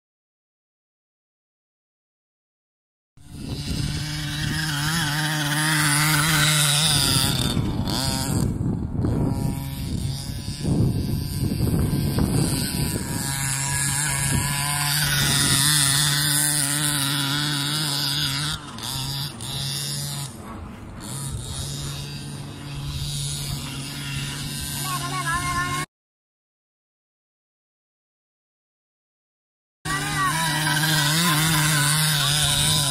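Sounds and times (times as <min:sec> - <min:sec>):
small two-stroke engine revving: 0:03.2 - 0:25.9, 0:29.9 - 0:32.9.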